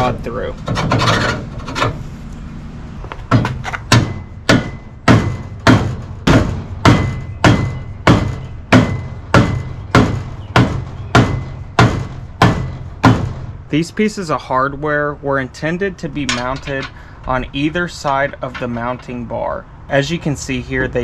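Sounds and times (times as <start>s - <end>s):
sharp thumps: 3.0s - 13.7s.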